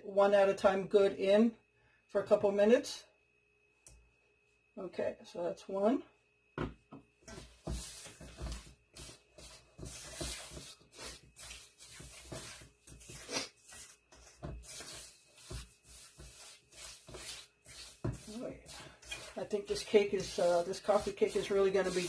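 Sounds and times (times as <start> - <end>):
spatula scraping mixing bowl: 7.3 - 22.0.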